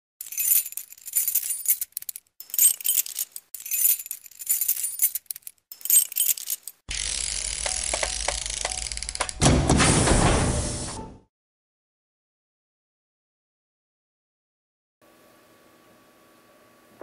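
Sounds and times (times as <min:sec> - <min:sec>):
bright jingling sound effect: 0:00.2 - 0:06.7.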